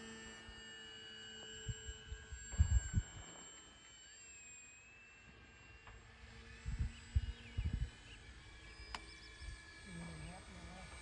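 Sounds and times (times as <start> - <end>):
rc airplane electric motor whine: 0.0 - 11.0
wind buffeting microphone: 2.5 - 3.2, 6.6 - 8.0.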